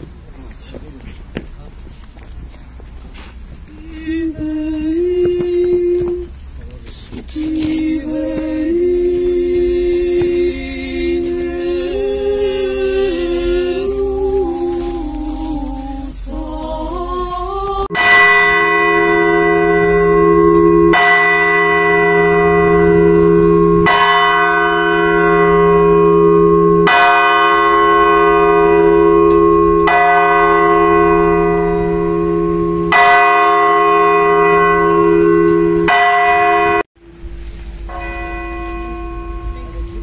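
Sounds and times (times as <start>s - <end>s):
church bell tolling: 17.9s - 40.0s.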